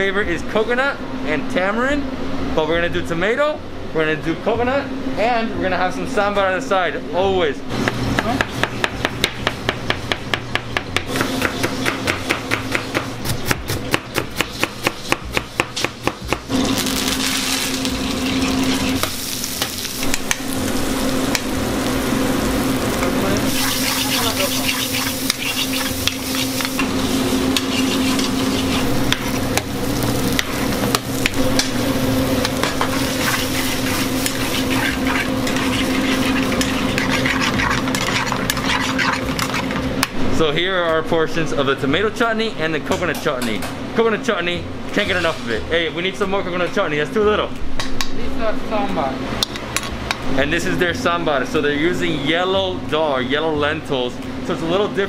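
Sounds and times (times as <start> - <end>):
onions sizzling in a pan: 16.3 - 39.6
metal spoon stirring in pan: 23.5 - 29.6, 32.4 - 40.0.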